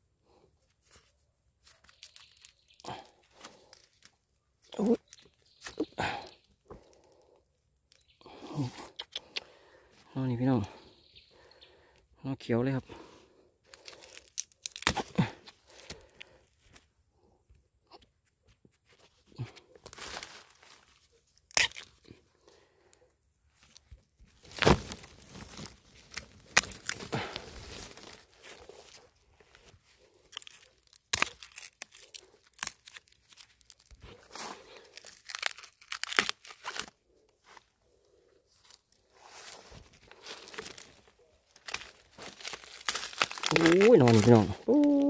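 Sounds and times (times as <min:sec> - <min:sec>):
bamboo crackling and tearing: 0:00.2 - 0:11.9, 0:12.9 - 0:45.0
bamboo shoots snapping: 0:01.6 - 0:08.2, 0:13.7 - 0:16.8, 0:19.4 - 0:22.2, 0:23.6 - 0:29.0, 0:30.0 - 0:37.0, 0:39.7 - 0:45.0.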